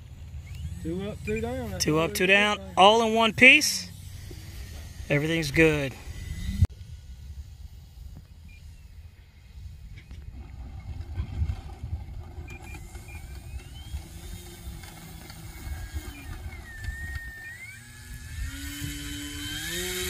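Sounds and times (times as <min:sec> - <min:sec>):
rising buzzing tone: 0:00.0 - 0:09.2, 0:11.6 - 0:20.0
wind buffeting microphone: 0:04.0 - 0:20.0
thin gliding whistles: 0:12.4 - 0:14.2, 0:15.3 - 0:18.4.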